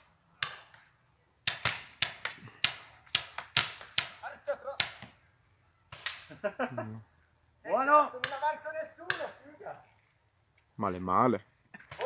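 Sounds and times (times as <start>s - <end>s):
paintball markers firing: 0.4s - 4.2s, 5.9s - 6.3s.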